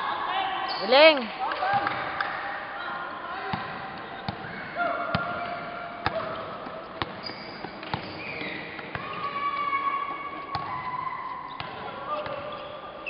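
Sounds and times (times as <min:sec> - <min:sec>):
sneaker squeaks: 0:00.6 - 0:01.2, 0:02.7 - 0:13.0
basketball bouncing on court: 0:01.6 - 0:02.4, 0:03.5 - 0:12.6.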